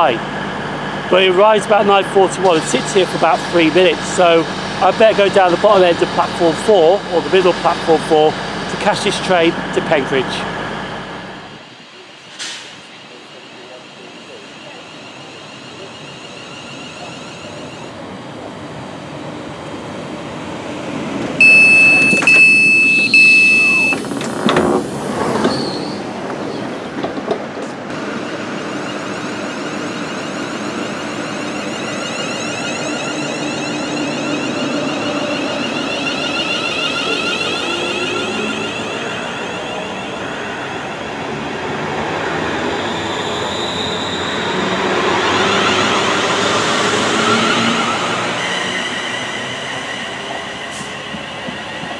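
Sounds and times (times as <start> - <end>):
electric train running: 0.0 - 51.9
high-pitched door warning beep: 21.4 - 24.2, 28.4 - 40.2.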